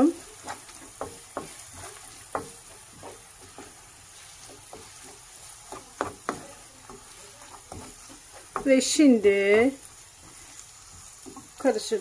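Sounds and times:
faint frying sizzle: 0:00.0 - 0:12.0
wooden spoon scraping a pan: 0:00.0 - 0:12.0.

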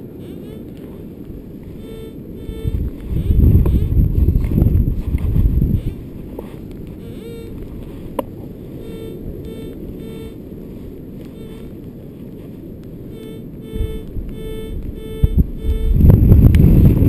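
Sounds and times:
wind rumble on microphone: 0:00.0 - 0:17.0
metal detector beeps: 0:00.2 - 0:00.9, 0:01.7 - 0:04.0, 0:05.6 - 0:06.1, 0:06.9 - 0:07.6, 0:08.8 - 0:10.4, 0:11.2 - 0:11.7, 0:13.1 - 0:16.5.

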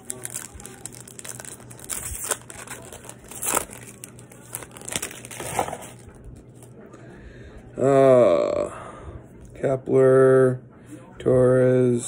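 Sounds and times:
plastic wrapper crinkling: 0:00.0 - 0:06.7.

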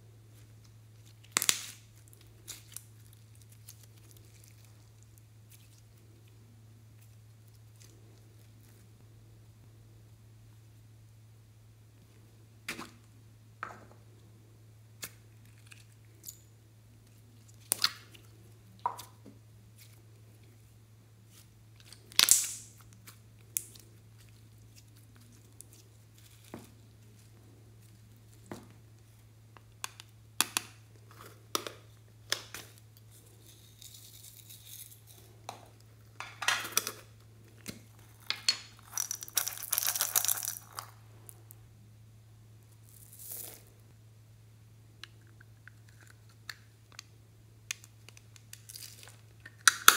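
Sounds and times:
plastic beads clattering: 0:32.4 - 0:35.3, 0:37.9 - 0:41.0, 0:42.8 - 0:43.7.

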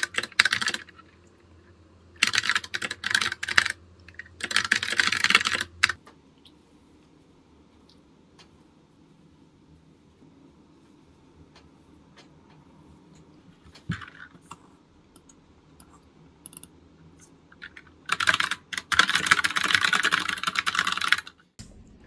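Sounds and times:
computer keyboard typing: 0:00.0 - 0:01.2, 0:02.2 - 0:06.0, 0:13.7 - 0:16.7, 0:17.6 - 0:21.5.

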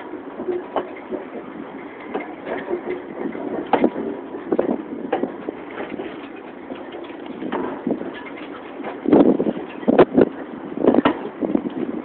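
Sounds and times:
rail vehicle rattling on track: 0:00.0 - 0:12.0.

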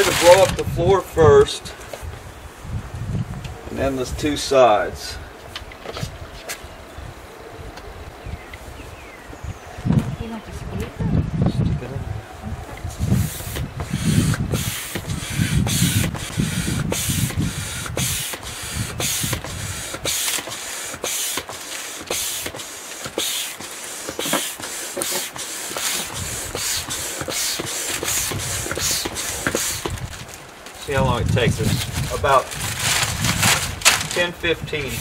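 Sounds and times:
air pump hissing: 0:00.0 - 0:00.6, 0:12.8 - 0:30.1
low rumbling: 0:09.1 - 0:20.0.

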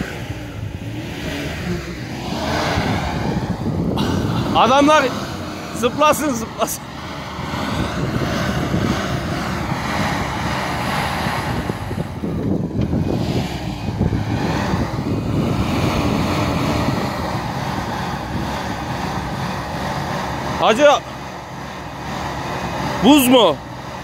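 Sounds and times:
wind buffeting microphone: 0:00.0 - 0:20.5
engine running under load: 0:00.0 - 0:24.0.

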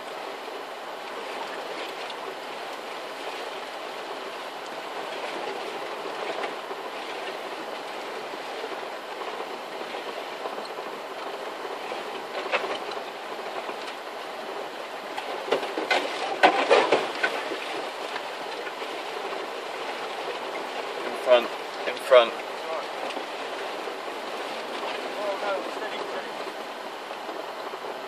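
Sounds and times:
tyres and running gear noise: 0:00.0 - 0:28.0
sharp knocks and rattles: 0:15.1 - 0:18.8.

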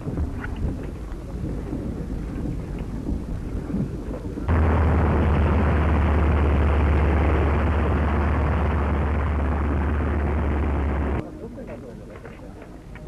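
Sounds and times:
film soundtrack crackling rumble: 0:04.4 - 0:11.2
strong low hum: 0:04.5 - 0:11.2.

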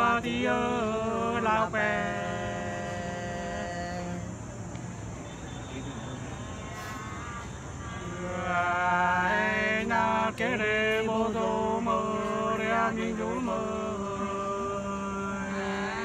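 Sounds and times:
men singing unaccompanied: 0:00.0 - 0:04.5, 0:08.0 - 0:16.0.

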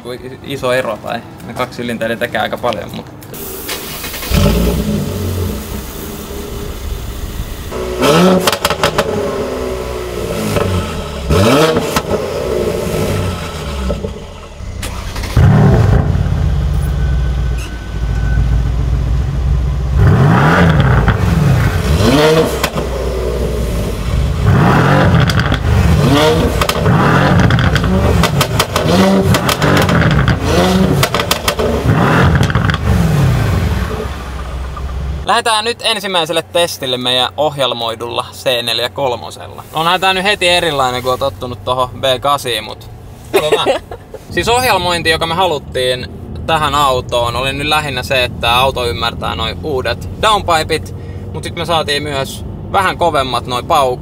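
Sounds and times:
exhaust crackles: 0:03.4 - 0:17.3, 0:18.0 - 0:35.3
car engines revving: 0:03.4 - 0:35.3.

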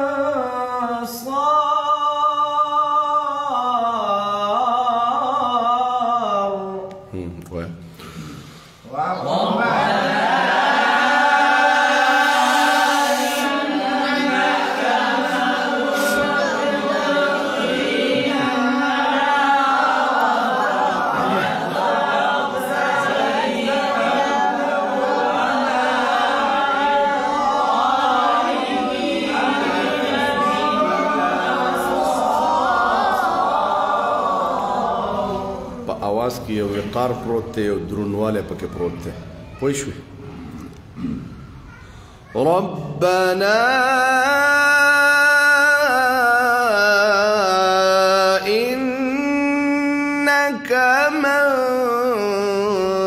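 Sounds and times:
young voices chanting in unison: 0:08.8 - 0:35.9.

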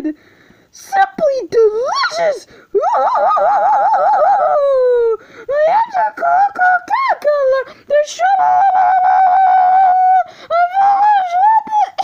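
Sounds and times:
girl singing in a high voice: 0:05.0 - 0:12.0.

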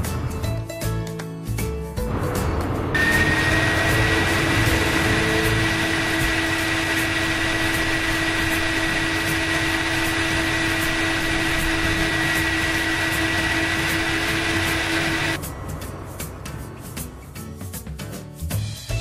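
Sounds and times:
small electric motor whirring: 0:03.0 - 0:15.4.

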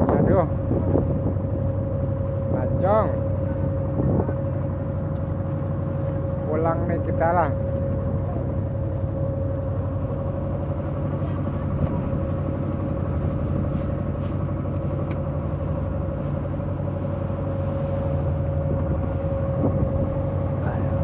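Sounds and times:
boat engine droning: 0:00.0 - 0:21.0
engine whine: 0:00.0 - 0:21.0.

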